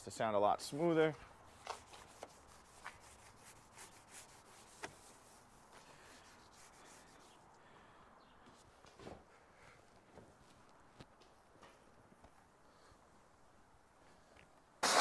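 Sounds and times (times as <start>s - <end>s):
clay mitt rubbing car paint: 1.2s - 7.5s.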